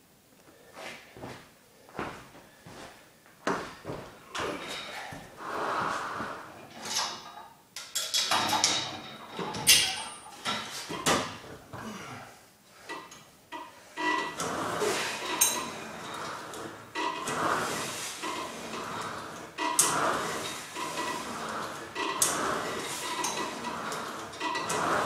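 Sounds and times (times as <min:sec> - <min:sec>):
cable running through pulleys: 0:14.0 - 0:25.0
seat rolling on slide rail: 0:14.0 - 0:25.0.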